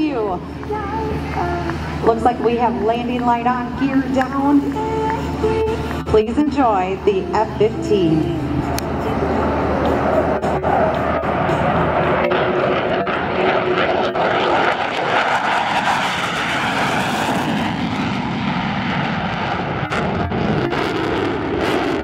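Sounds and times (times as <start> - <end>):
fighter jet flyby: 8.2 - 22.0.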